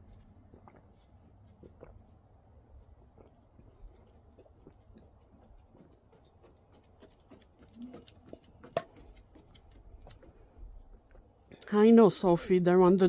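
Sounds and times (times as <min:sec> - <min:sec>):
duck feet pattering on wood: 0:04.0 - 0:11.1.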